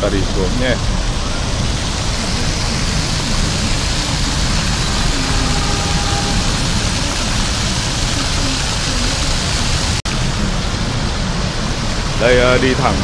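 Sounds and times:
city traffic: 0.0 - 13.0
fountain jets splashing into pond: 0.0 - 13.0.

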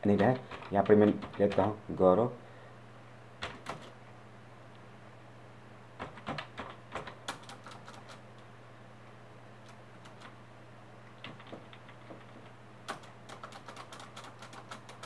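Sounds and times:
low steady hum: 0.0 - 15.0
computer keyboard keystrokes: 0.2 - 1.8, 3.4 - 4.0, 6.0 - 8.2, 9.6 - 10.4, 11.2 - 15.0.

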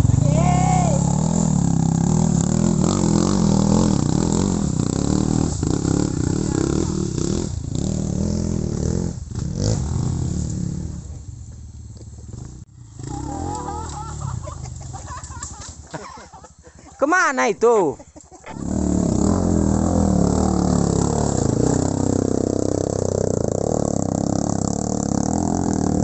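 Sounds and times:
motorcycle engine running: 0.0 - 15.7, 18.5 - 26.0.

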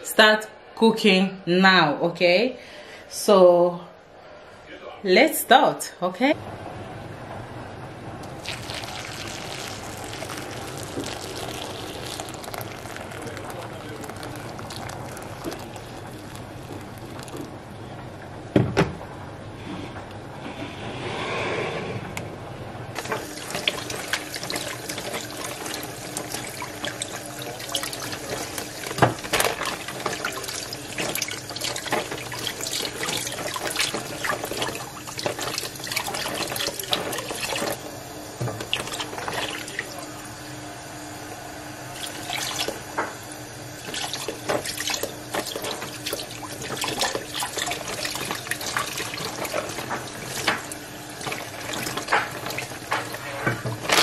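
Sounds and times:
water splashing: 8.2 - 17.6, 23.0 - 37.9, 38.5 - 40.2, 41.9 - 42.9, 43.8 - 54.0
plastic bag rustling: 8.4 - 17.6
tap running into sink: 23.0 - 37.8, 38.4 - 40.0, 43.8 - 54.0.

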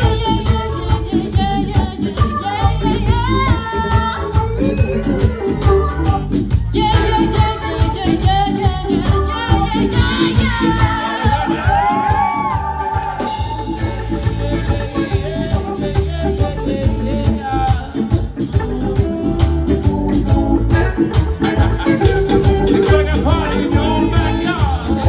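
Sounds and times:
woman singing: 0.0 - 20.4
reggae band playing: 0.0 - 25.0.

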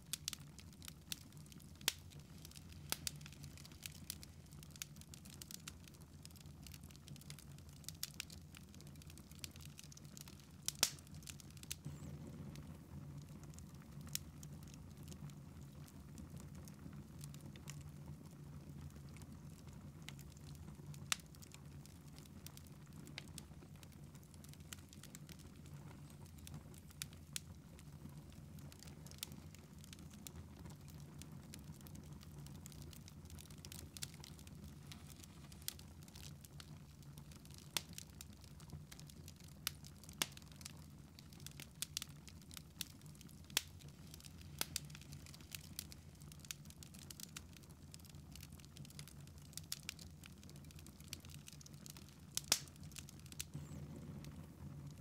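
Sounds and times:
log fire crackling: 0.0 - 55.0
low steady hum: 11.5 - 15.0.

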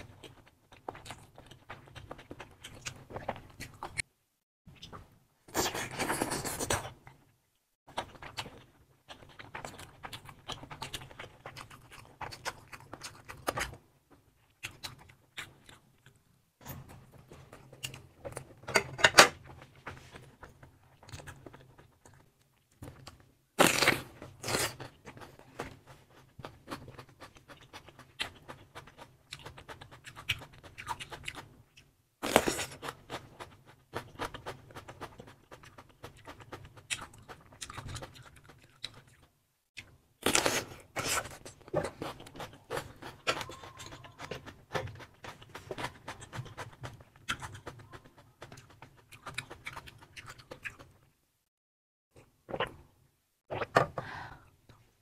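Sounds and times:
chewing and wet mouth sounds: 0.0 - 4.1, 4.7 - 18.6, 19.4 - 23.4, 24.2 - 51.2.

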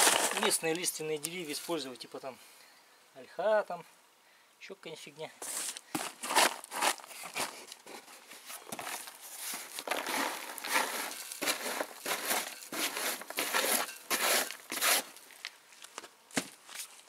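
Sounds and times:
wood chips rustling and crunching: 0.0 - 1.8, 5.4 - 17.0
cardboard box rustling: 5.6 - 15.1.

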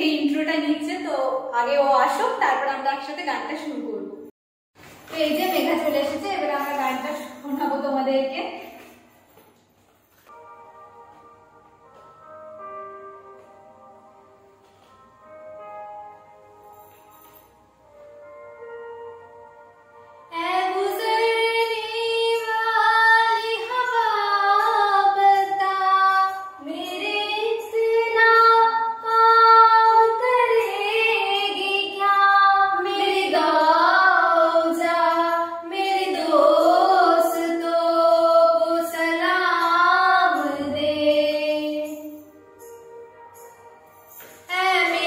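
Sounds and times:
women singing: 20.3 - 42.3, 44.5 - 45.0.

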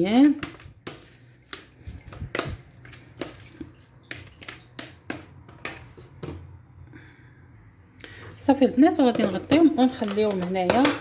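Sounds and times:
wet squishes of mixing meat: 0.0 - 5.6.

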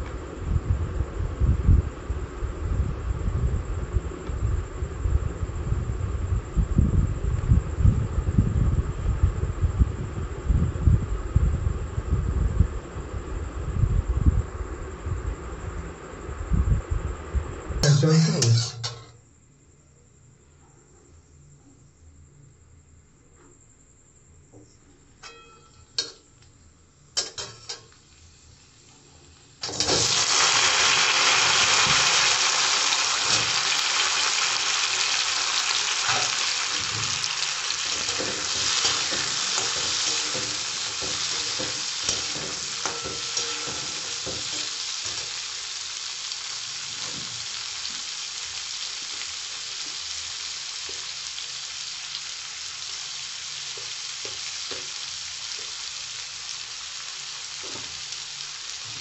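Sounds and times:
seeds sizzling in hot oil: 27.2 - 59.0
metal spatula scraping pan: 37.9 - 45.2.

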